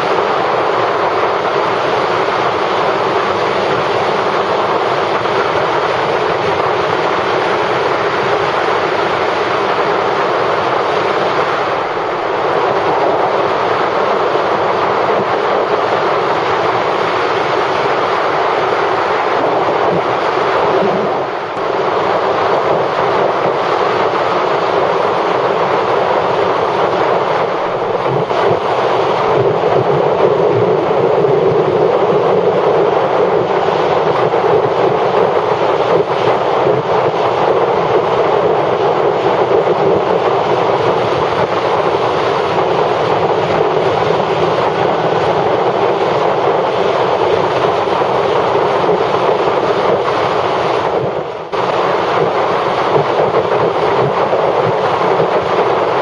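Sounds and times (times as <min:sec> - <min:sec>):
wind rushing: 0:00.0 - 0:56.0
motorcycle road noise: 0:40.0 - 0:52.0.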